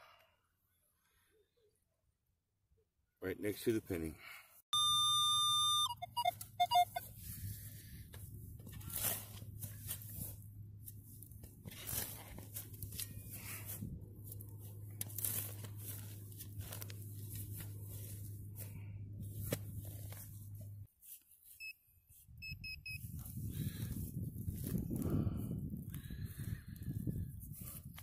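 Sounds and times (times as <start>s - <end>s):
pinpointer beeping: 4.8s - 7.0s, 22.4s - 23.0s
steady low hum: 6.9s - 20.9s
soil and roots tearing: 8.6s - 20.7s.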